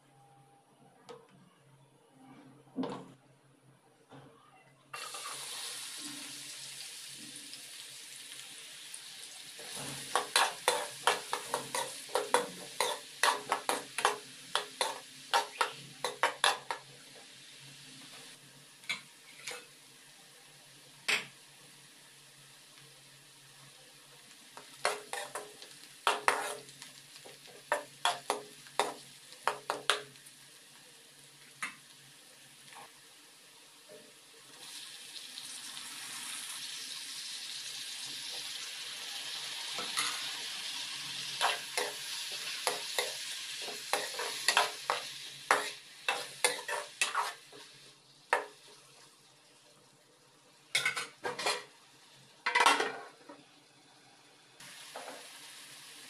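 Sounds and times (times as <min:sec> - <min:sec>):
onions sizzling in hot oil: 0:05.0 - 0:56.0
spoon scraping and knocking pan: 0:09.6 - 0:16.9, 0:24.6 - 0:30.1, 0:41.4 - 0:47.7, 0:50.8 - 0:51.7.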